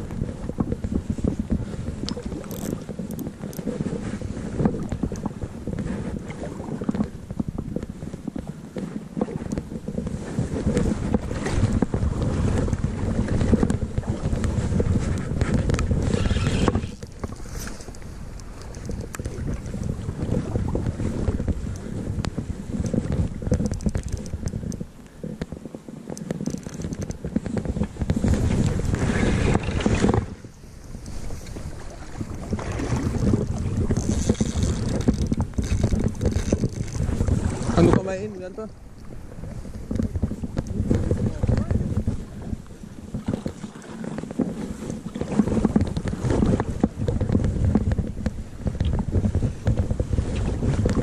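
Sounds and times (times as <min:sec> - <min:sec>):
wind buffeting microphone: 0:00.0 - 0:51.0
fishing reel handling noise: 0:02.1 - 0:03.7, 0:23.5 - 0:24.8, 0:26.1 - 0:27.2, 0:33.9 - 0:37.1
fishing reel clicks: 0:02.4 - 0:03.2, 0:23.6 - 0:24.8, 0:26.4 - 0:27.2.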